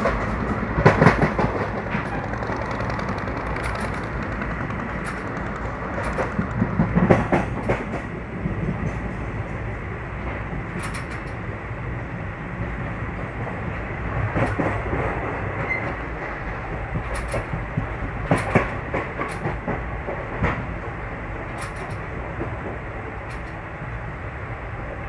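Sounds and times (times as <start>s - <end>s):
wheels clacking over rail joints: 0.0s - 9.4s, 10.2s - 11.6s, 13.5s - 23.7s
train rumbling on rails: 0.0s - 25.0s.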